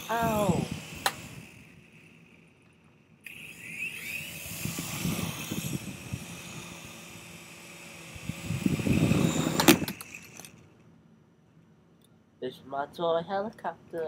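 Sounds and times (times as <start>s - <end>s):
toy helicopter motor whining: 0.0s - 10.8s.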